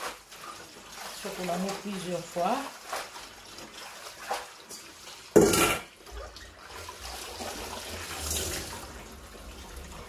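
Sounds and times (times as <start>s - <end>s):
hands washing greens: 0.0s - 10.0s
water running into a sink: 0.0s - 10.0s
metal colander clattering: 5.4s - 5.9s.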